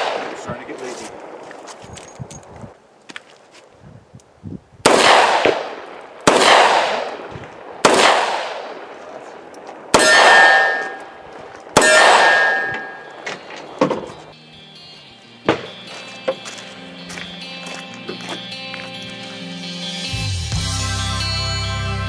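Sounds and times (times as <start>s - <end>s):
steel target ringing: 10.0s - 11.2s, 11.8s - 13.7s.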